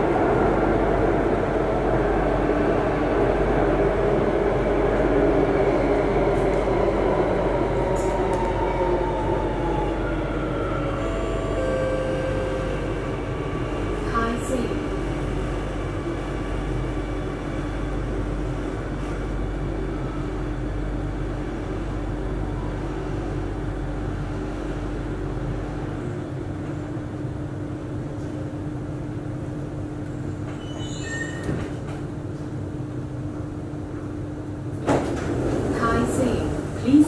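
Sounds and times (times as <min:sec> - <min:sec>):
deep train rumble: 0:00.0 - 0:37.0
steady train hum: 0:00.0 - 0:37.0
brief high squeak: 0:30.5 - 0:31.6.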